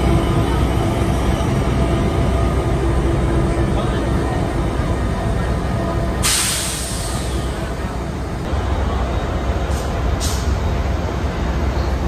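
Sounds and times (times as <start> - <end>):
diesel locomotive idling: 0.0 - 12.0
air hiss bursts: 6.2 - 7.4.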